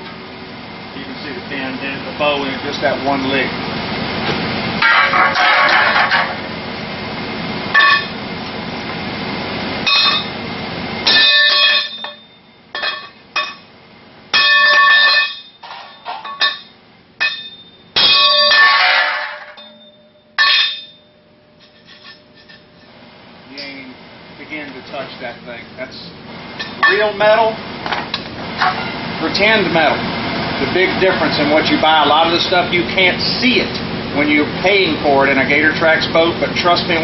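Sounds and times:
hammer clanging on metal: 7.8 - 8.2, 9.9 - 10.3, 11.1 - 12.2, 12.8 - 13.7, 14.4 - 21.0, 26.6 - 27.3.

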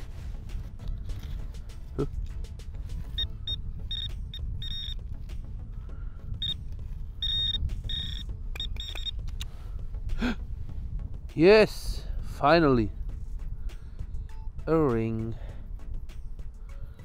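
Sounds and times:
short high beeps: 3.2 - 5.0, 7.2 - 9.2.

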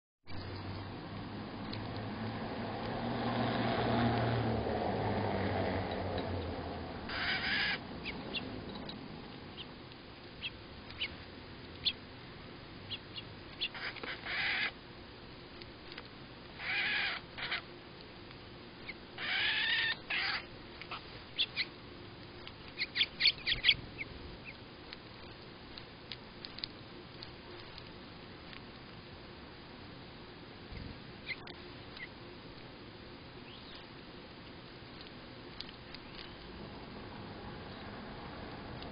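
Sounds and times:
bird harsh calls: 7.1 - 9.0, 12.9 - 14.8, 16.6 - 17.7, 18.8 - 21.7
bird sharp chips: 7.1 - 9.0.

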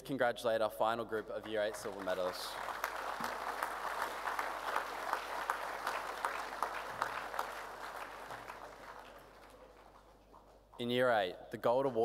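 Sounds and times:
audience applauding: 1.1 - 10.6.

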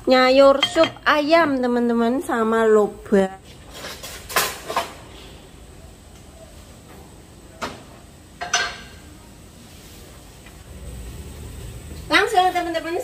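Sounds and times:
cookware clattering: 0.5 - 1.2, 8.4 - 9.0.

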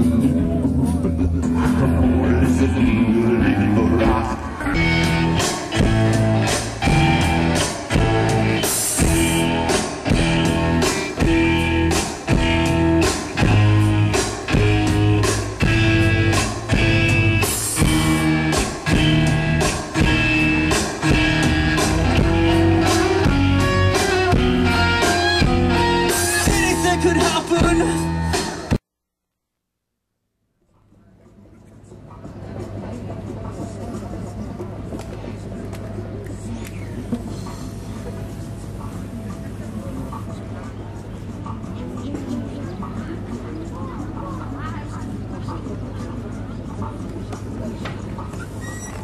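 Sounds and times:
electric guitars: 0.0 - 28.8
live rock band music: 0.0 - 28.8
upright bass: 0.0 - 28.8.

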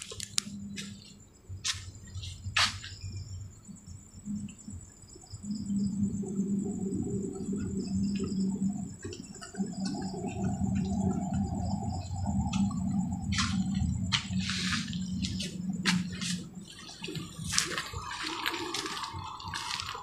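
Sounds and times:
crickets trilling: 0.0 - 20.0
low mechanical hum: 0.0 - 20.0.

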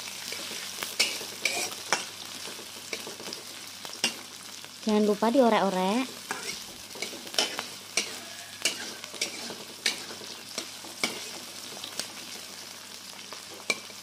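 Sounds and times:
food sizzling in hot oil: 0.0 - 14.0
metal spatula scraping wok: 0.3 - 2.1, 6.2 - 12.4.

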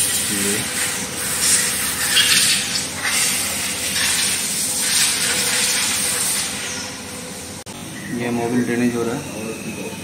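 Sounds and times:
pressure washer jet hissing: 0.0 - 6.9.

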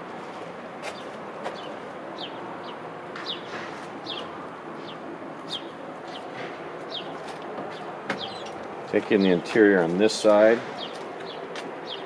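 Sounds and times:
bird chirping: 1.0 - 8.6, 10.8 - 12.0.

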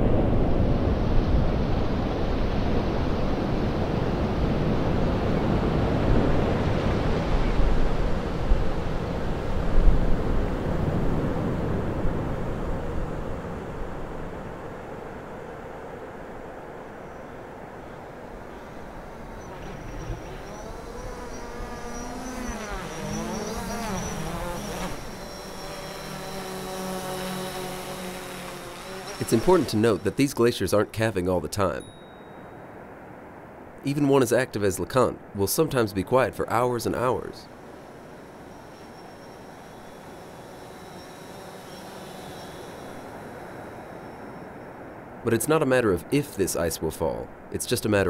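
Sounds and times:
drone propellers buzzing: 3.2 - 14.4, 18.2 - 30.6, 37.4 - 44.9.

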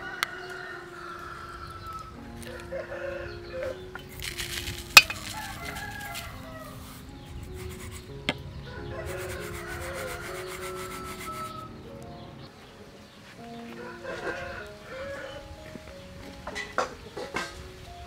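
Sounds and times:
soft background music: 0.0 - 18.0
metal spoon clinking on plate: 5.0 - 5.3.

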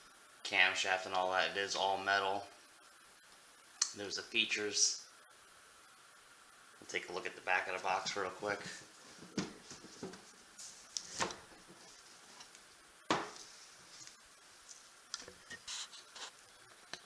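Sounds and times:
box thump: 13.1 - 13.4
light rubbing: 13.3 - 16.4.

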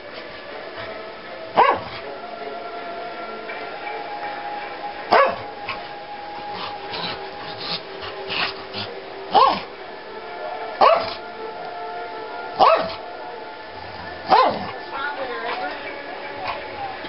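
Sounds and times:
large dog barking: 1.5 - 2.0, 5.1 - 5.8, 6.6 - 9.7, 10.8 - 11.2, 12.6 - 13.0, 14.2 - 14.8.

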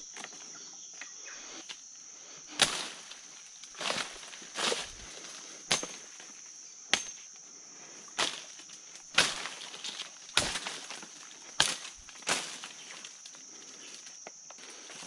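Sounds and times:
brushing through undergrowth: 1.4 - 6.4, 8.0 - 15.0.

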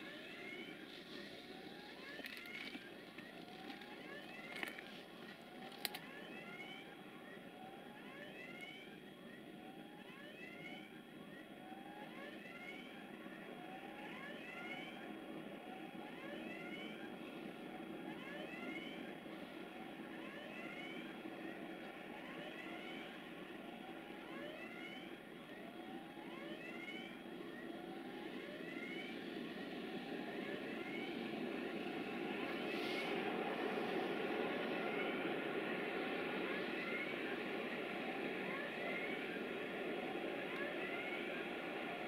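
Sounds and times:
locomotive engine drone: 0.0 - 42.0.

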